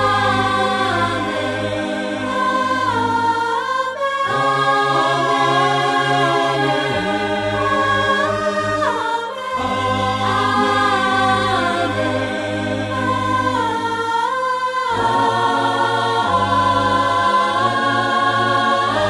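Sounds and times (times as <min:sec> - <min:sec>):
gospel choir singing: 0:00.0 - 0:19.0.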